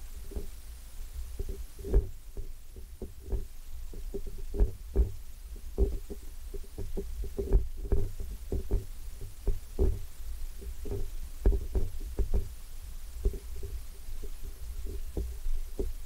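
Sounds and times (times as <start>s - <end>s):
dull knocks of handled camera: 1.4s - 5.2s, 10.9s - 12.5s.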